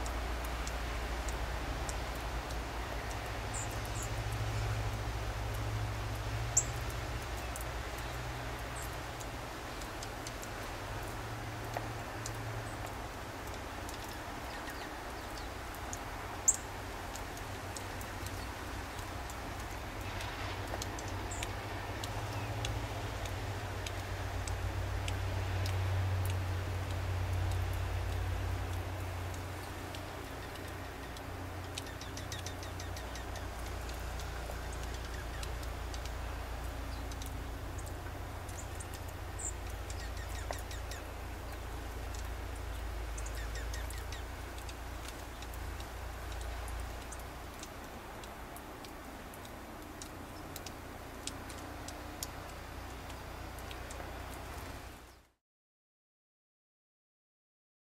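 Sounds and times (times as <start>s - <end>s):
songbirds chirping: 0.0s - 55.3s.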